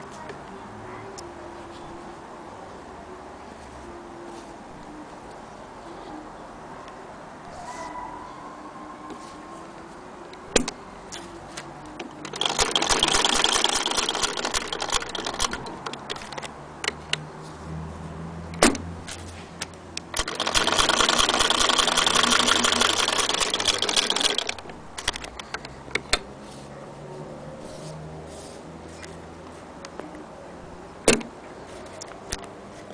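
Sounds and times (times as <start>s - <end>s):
sewing machine rattling: 12.2s - 16.3s, 20.1s - 25.4s.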